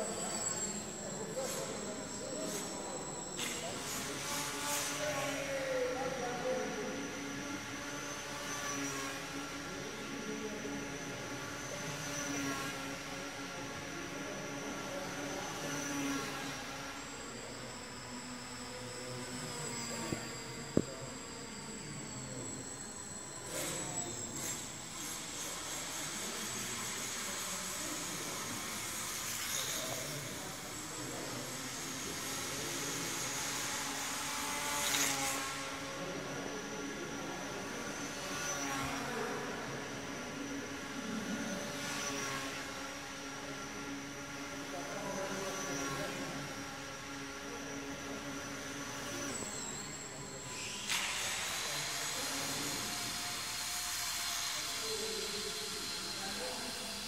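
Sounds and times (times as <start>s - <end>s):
faint high whine: 0.0s - 57.0s
model plane motor and propeller: 0.0s - 57.0s.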